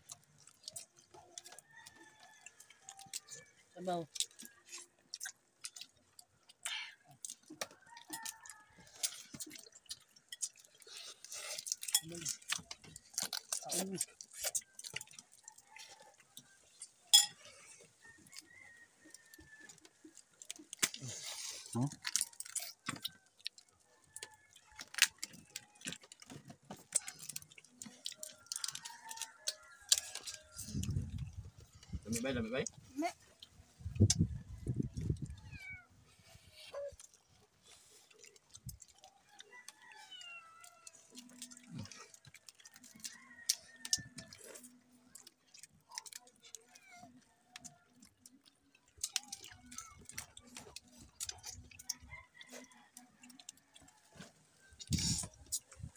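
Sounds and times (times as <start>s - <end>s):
crab shells cracking: 0.1s - 17.4s, 18.5s - 21.1s, 21.9s - 31.3s, 37.0s - 55.9s
sucking crab meat: 33.1s - 55.9s.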